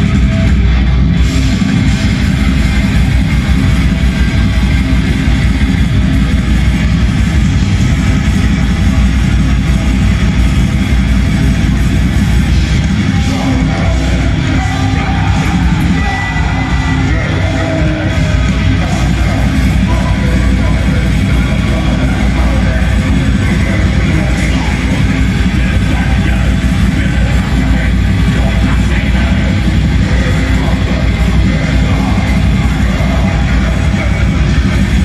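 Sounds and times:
bass guitar: 0:00.0 - 0:35.0
distorted electric guitars: 0:00.0 - 0:35.0
drums: 0:00.0 - 0:35.0
harsh yelled vocals: 0:00.0 - 0:35.0.

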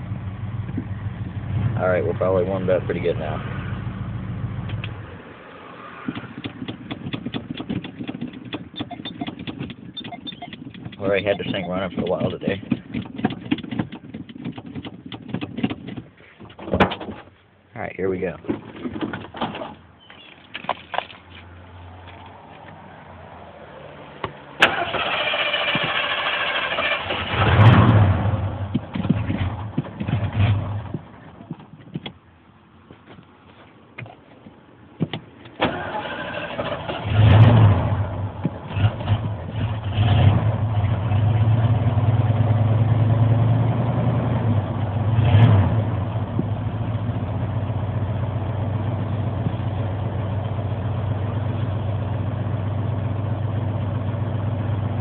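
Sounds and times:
truck engine revving and idling: 0:00.0 - 0:05.1, 0:24.7 - 0:31.1, 0:36.0 - 0:55.0
starter motor cranking: 0:24.6 - 0:27.6.

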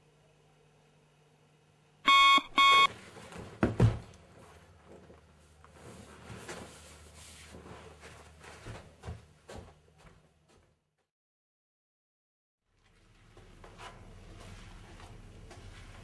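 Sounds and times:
alarm clock beeping: 0:02.1 - 0:02.9.

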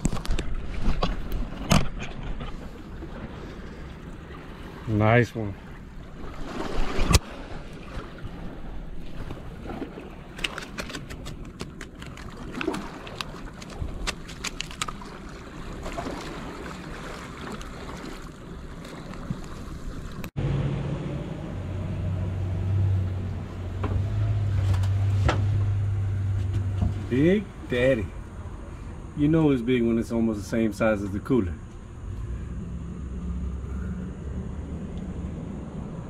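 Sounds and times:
clicks and rustles handling fish: 0:00.0 - 0:02.8, 0:09.2 - 0:15.3
water washing against rocks: 0:09.1 - 0:20.3
steady low hum: 0:19.7 - 0:36.0.

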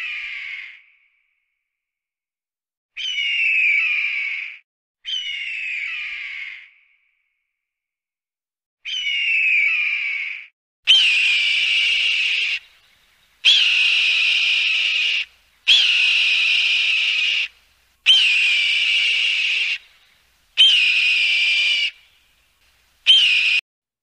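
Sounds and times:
eagle calling: 0:10.9 - 0:22.4, 0:23.0 - 0:23.6.

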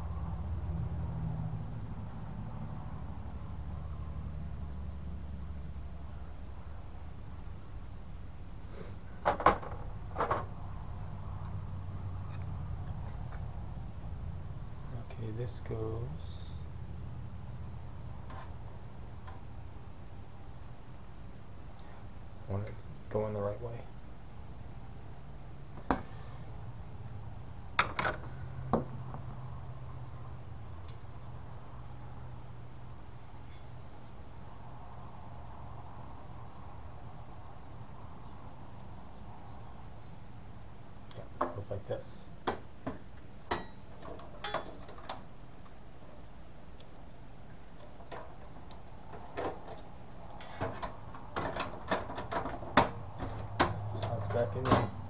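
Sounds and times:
clicks and metal knocks: 0:09.2 - 0:10.5, 0:27.8 - 0:29.2, 0:42.4 - 0:45.8, 0:47.8 - 0:55.0.

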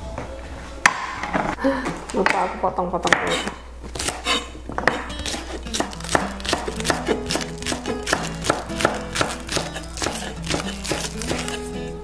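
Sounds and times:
knife chopping on wooden board: 0:03.1 - 0:11.7
background music: 0:04.9 - 0:12.0.

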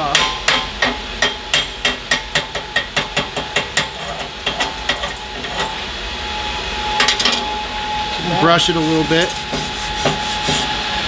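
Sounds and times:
hammer tapping metal: 0:00.0 - 0:05.1.

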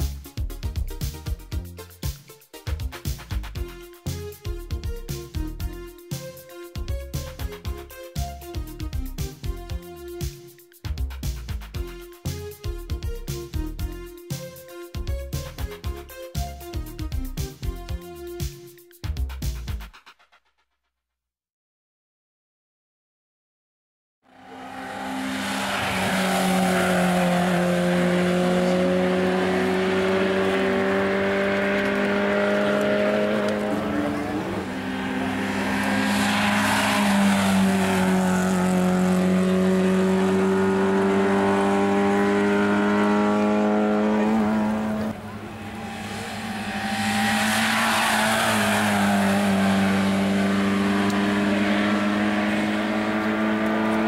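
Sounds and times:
racing car engines accelerating: 0:24.3 - 0:54.0.

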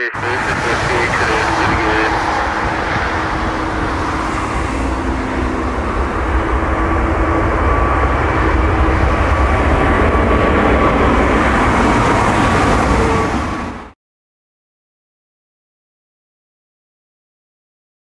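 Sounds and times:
jet engines rumbling overhead: 0:00.0 - 0:14.0.

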